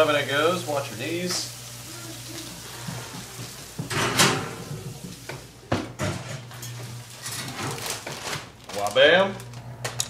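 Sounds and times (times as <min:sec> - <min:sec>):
skillet scraping and clattering: 0:02.6 - 0:08.9
oven door shutting: 0:02.9 - 0:08.5.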